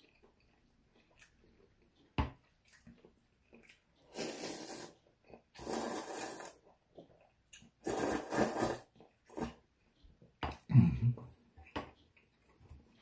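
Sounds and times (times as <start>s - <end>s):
person slurping noodles: 4.0s - 5.0s, 5.6s - 6.6s, 7.8s - 9.6s.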